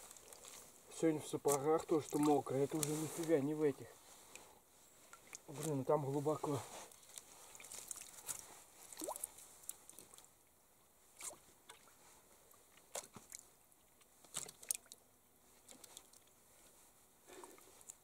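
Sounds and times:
water splashing and dripping: 1.5s - 3.0s, 7.5s - 10.3s, 14.0s - 15.0s.

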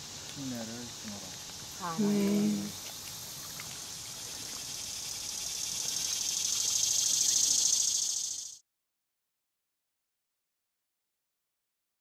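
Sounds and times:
insects buzzing: 0.0s - 8.6s.

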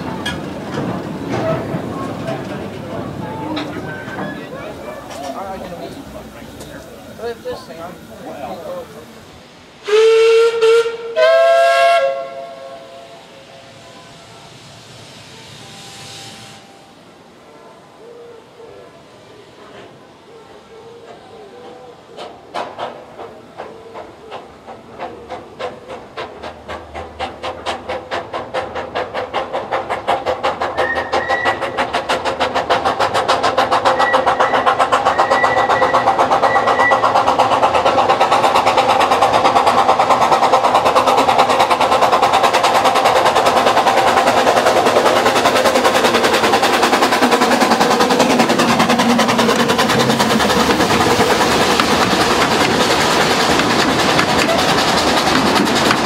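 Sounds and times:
wheels clattering over rails: 0.0s - 8.8s, 22.2s - 56.0s
steam locomotive exhaust beats: 0.0s - 17.4s, 21.0s - 56.0s.

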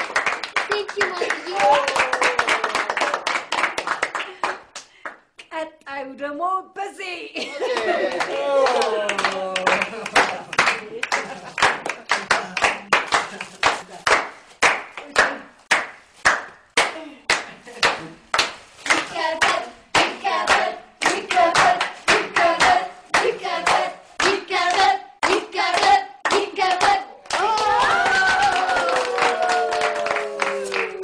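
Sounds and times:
rhythmic hand clapping: 0.0s - 5.3s, 7.8s - 31.0s.

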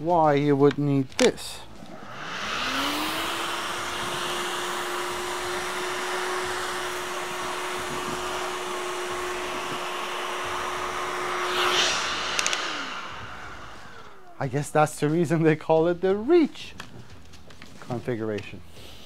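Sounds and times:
vacuum cleaner motor whine: 1.7s - 14.4s
rush of air: 1.7s - 14.6s.

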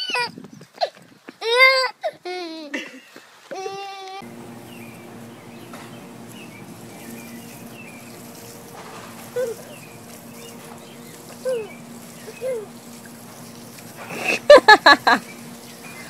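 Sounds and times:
small birds chirping: 4.2s - 16.0s
steady low hum: 4.2s - 16.0s.

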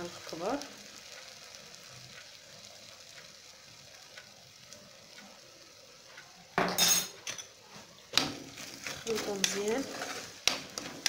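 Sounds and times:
rice sizzling in oil: 0.0s - 11.0s
spoon scraping in pot: 8.4s - 11.0s.

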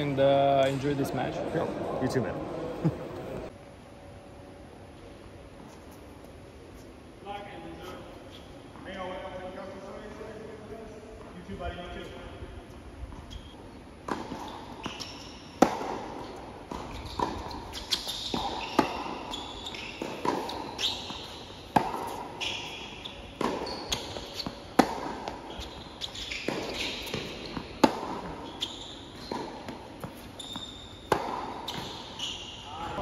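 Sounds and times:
shoes squeaking on court: 7.7s - 9.3s, 13.0s - 33.0s
tennis ball struck and bouncing: 14.0s - 14.9s, 15.6s - 19.2s, 20.0s - 22.4s, 23.3s - 25.5s, 26.4s - 28.4s, 31.1s - 32.0s.

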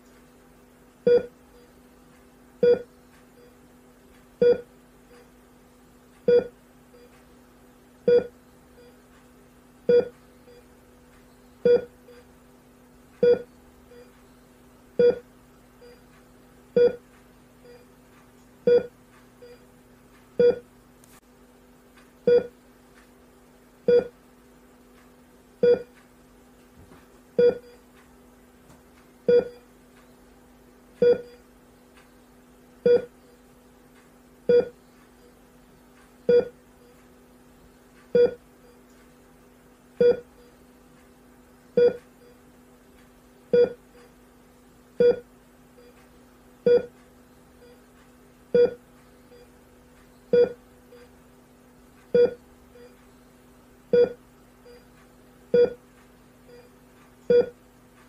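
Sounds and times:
steady low hum: 0.0s - 58.0s
heart rate monitor beeping: 1.0s - 1.8s, 2.6s - 3.7s, 4.4s - 5.4s, 6.2s - 7.4s, 8.0s - 12.4s, 13.2s - 19.7s, 20.4s - 20.7s, 22.2s - 22.6s, 23.9s - 24.2s, 25.6s - 26.0s, 27.4s - 27.9s, 29.2s - 30.3s, 30.9s - 33.7s, 34.4s - 38.9s, 40.0s - 40.7s, 41.6s - 42.5s, 43.5s - 44.2s, 45.0s - 51.2s, 52.0s - 57.6s.

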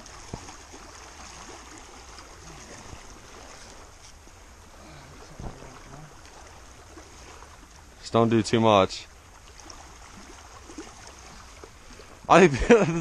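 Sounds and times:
small waves lapping on stones: 0.0s - 4.2s, 9.2s - 12.4s
wind rumbling on microphone: 0.0s - 7.5s.

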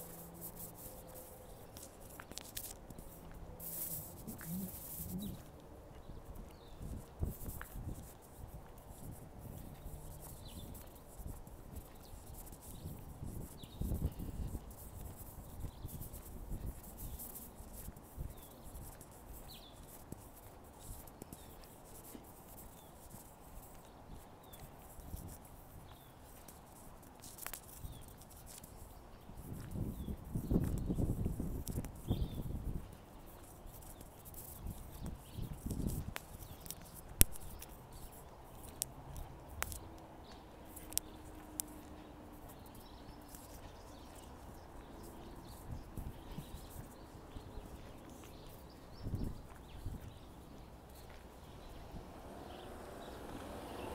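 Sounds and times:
footsteps on pavement: 0.0s - 53.9s
quiet street ambience: 0.0s - 53.9s
small bird chirping: 0.0s - 53.9s
wind buffeting microphone: 1.8s - 21.5s, 27.7s - 50.4s.

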